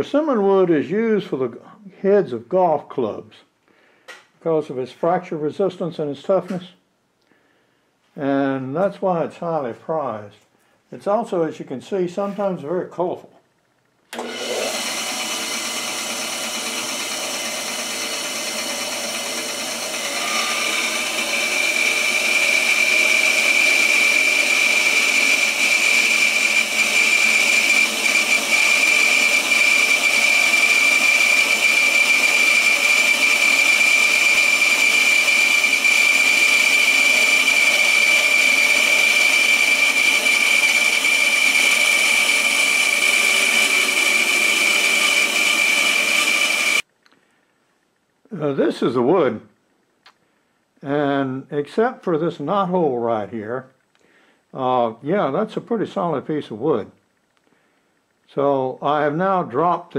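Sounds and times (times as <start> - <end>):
bandsaw cutting wood: 14.2 - 46.8
high blade whine: 20.0 - 22.3.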